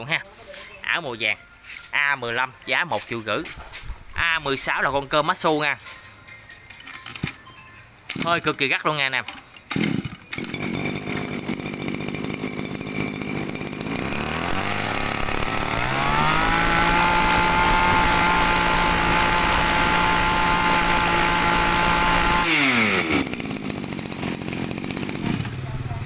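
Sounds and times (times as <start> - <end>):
brushcutter engine revving: 8.1 - 26.0.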